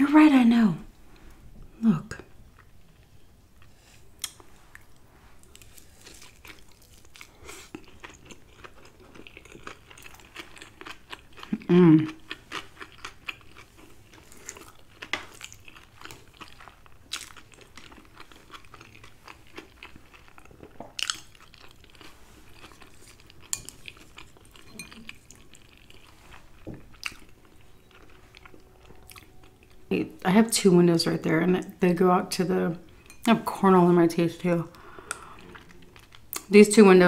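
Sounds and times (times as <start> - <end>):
chewing food: 2.5 - 30.0.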